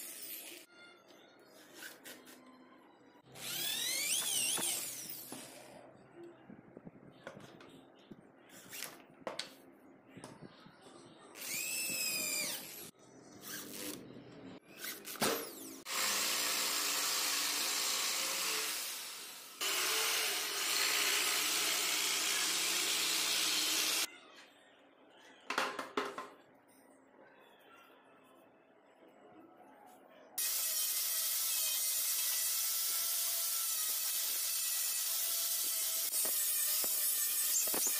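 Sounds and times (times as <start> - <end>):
electric drill boring into wood: 3.4 - 5.4, 11.4 - 12.9, 15.5 - 24.1, 30.4 - 37.9.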